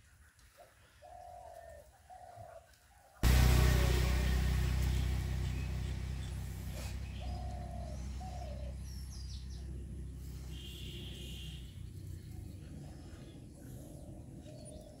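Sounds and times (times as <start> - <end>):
loud low hum: 3.2 - 10.4
bird chirps: 4.6 - 9.8
dove cooing: 7.1 - 8.8.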